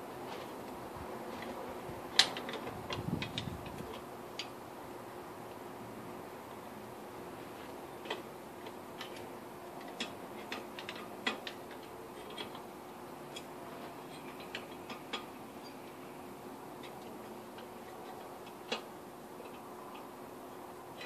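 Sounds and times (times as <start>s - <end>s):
faint steady hum: 0.0s - 21.0s
hand tools tapping metal: 8.1s - 12.7s, 13.3s - 16.0s.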